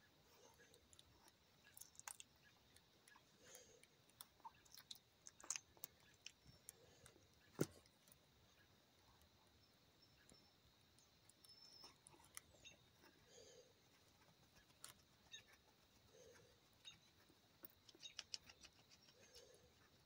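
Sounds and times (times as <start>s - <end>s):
puppy licking and chewing: 4.1s - 6.5s.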